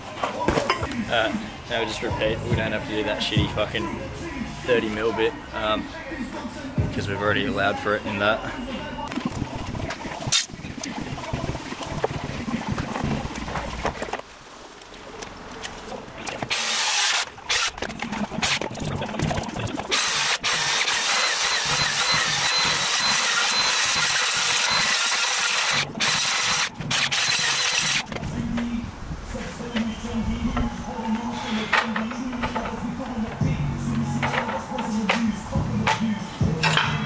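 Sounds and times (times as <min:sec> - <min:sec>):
circular saw cutting wood: 0:16.5 - 0:17.8, 0:19.9 - 0:28.1.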